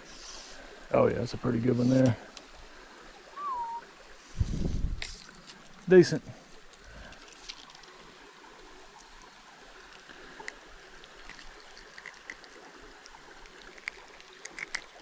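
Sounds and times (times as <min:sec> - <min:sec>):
creek trickling: 0:00.0 - 0:15.0
small sharp ticks: 0:06.6 - 0:08.1, 0:08.9 - 0:15.0.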